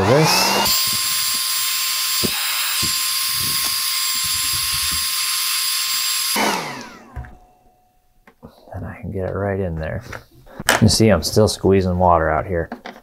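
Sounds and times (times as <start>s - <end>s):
hair dryer blowing: 0.0s - 7.2s.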